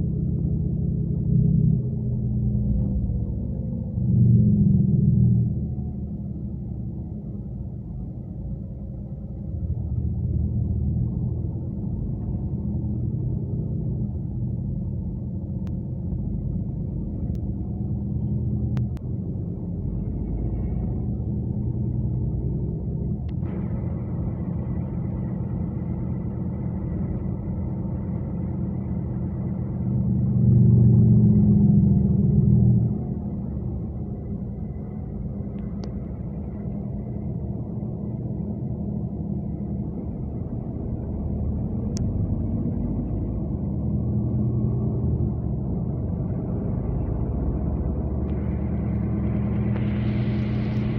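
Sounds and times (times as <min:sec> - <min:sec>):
bus engine rumble: 0:00.0 - 0:50.9
faint clicks: 0:18.7 - 0:19.1.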